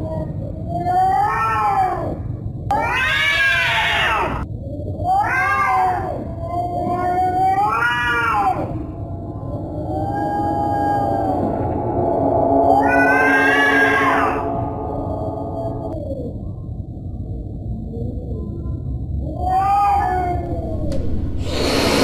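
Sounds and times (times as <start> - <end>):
cat yowling: 0.1 - 4.4, 5.1 - 9.0, 19.3 - 20.9
low steady rumble: 6.2 - 19.3, 20.3 - 21.6.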